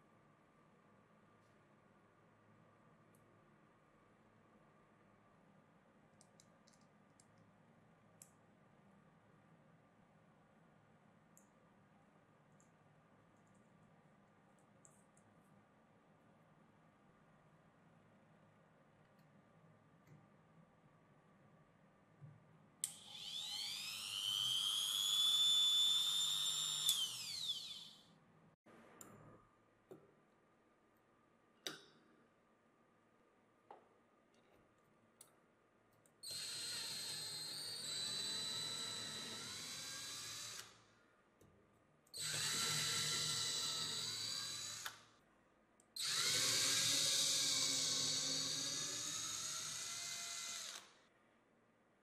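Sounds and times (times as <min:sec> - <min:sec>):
electric drill motor whine: 0:22.9 - 0:28.0, 0:36.3 - 0:40.8, 0:42.2 - 0:45.0, 0:46.0 - 0:51.0.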